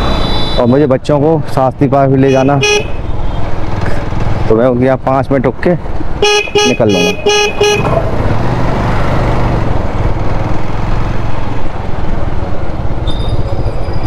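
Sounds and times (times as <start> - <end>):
motorcycle engine rumble: 5.8 - 14.0
horn short beeps: 6.2 - 7.9.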